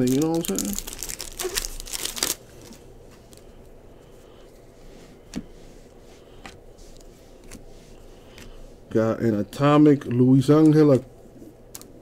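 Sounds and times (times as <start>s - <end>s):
plastic wrapper crinkling: 0.0s - 3.4s.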